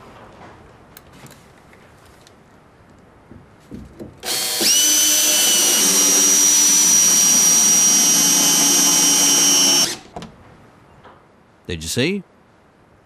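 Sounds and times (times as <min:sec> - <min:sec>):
cordless drill driving screw: 0:04.2 - 0:10.1.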